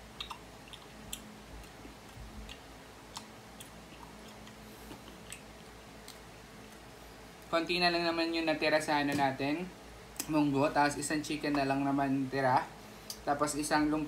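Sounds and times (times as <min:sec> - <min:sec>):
person chewing: 0:00.0 - 0:06.9
wet mouth clicks: 0:00.1 - 0:06.8.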